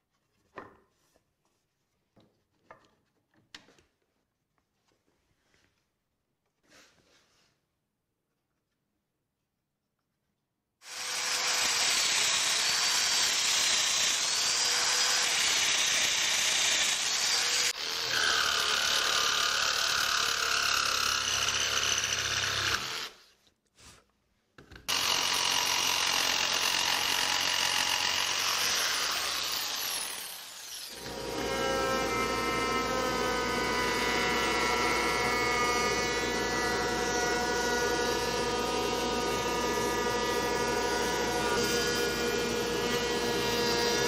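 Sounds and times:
jigsaw cutting wood: 0:10.8 - 0:23.2, 0:24.9 - 0:44.0.

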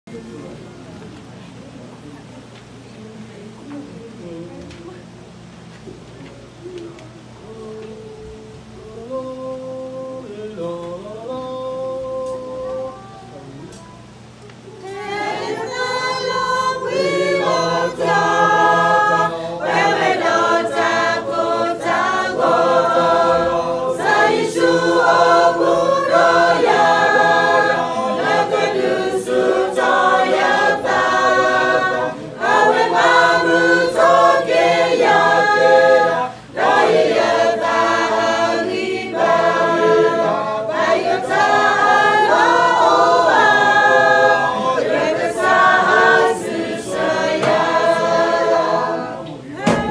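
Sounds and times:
choir singing: 0:14.8 - 0:49.9.

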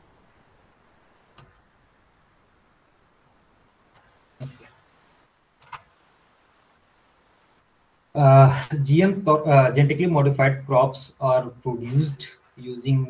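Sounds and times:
computer mouse clicks: 0:01.3 - 0:01.6, 0:03.9 - 0:04.7, 0:05.6 - 0:05.9.

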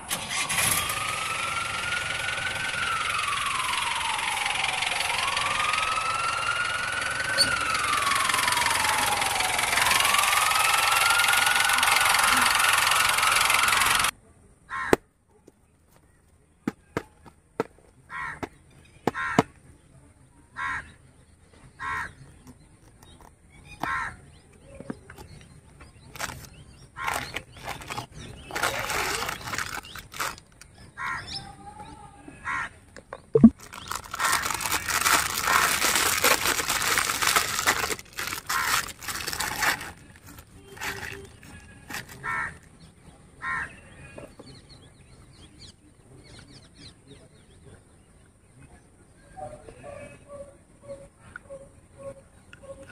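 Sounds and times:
crows cawing: 0:14.7 - 0:15.0, 0:18.1 - 0:18.5, 0:19.1 - 0:19.4, 0:20.6 - 0:20.9, 0:21.8 - 0:22.1, 0:23.8 - 0:24.2, 0:31.0 - 0:31.4, 0:32.4 - 0:32.8, 0:38.4 - 0:38.8, 0:42.2 - 0:42.6, 0:43.4 - 0:43.8
wrapping paper rustling and tearing: 0:26.1 - 0:30.6, 0:33.5 - 0:42.6.

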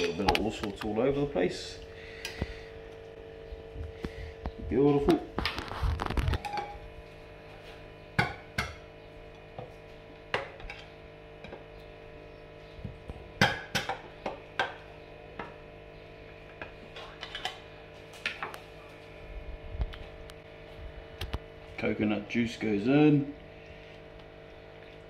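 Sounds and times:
faint steady hum: 0:00.0 - 0:25.0.

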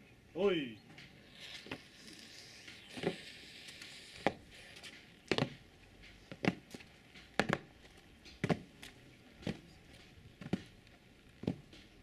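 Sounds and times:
boots marching on paving: 0:05.3 - 0:05.6, 0:06.2 - 0:12.0.

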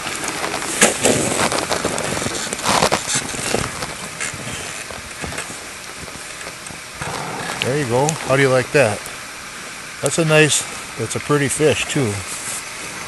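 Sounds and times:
rustling handling noise: 0:00.0 - 0:06.8.

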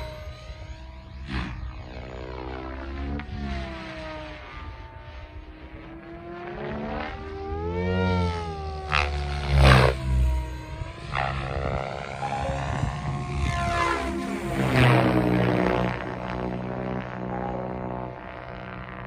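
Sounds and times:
rc helicopter motor whine: 0:00.0 - 0:19.0
rotor blade whoosh: 0:05.9 - 0:19.0.

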